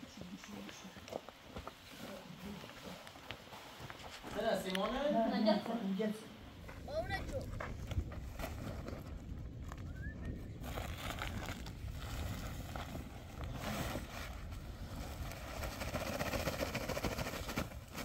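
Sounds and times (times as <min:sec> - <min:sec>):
low wind rumble on microphone: 0:06.4 - 0:18.0
rustling sackcloth: 0:10.6 - 0:18.0.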